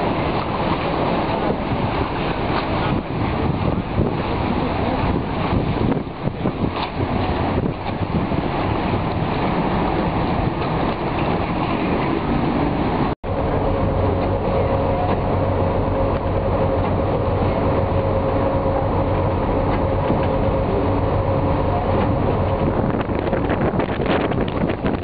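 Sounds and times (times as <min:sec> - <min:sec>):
ferry engine droning: 0:00.0 - 0:25.0
water rushing: 0:00.0 - 0:25.0
wind rushing: 0:20.0 - 0:25.0.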